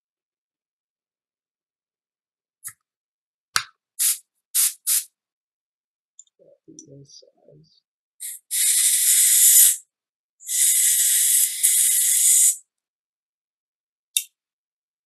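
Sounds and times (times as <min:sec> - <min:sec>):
compressed air spraying: 0:04.0 - 0:05.0, 0:08.2 - 0:09.8, 0:10.4 - 0:12.6.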